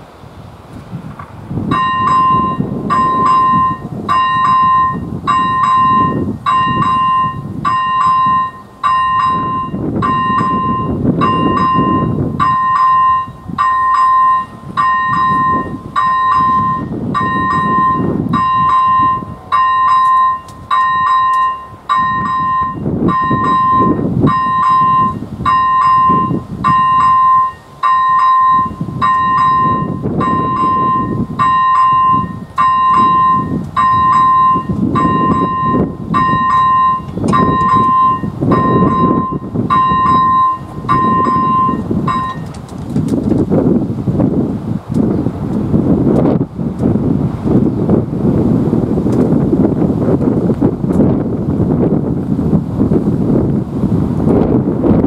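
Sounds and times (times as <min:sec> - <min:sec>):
electronic level crossing bell: 0:01.7 - 0:42.5.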